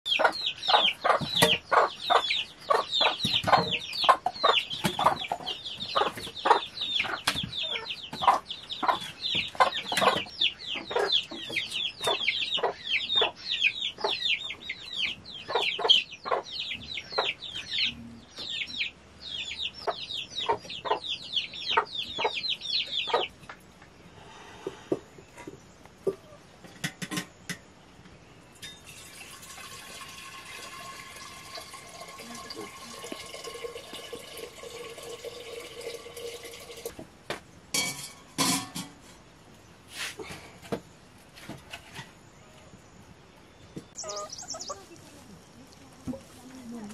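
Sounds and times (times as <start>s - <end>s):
chickens calling: 0.1s - 28.1s, 37.8s - 46.9s.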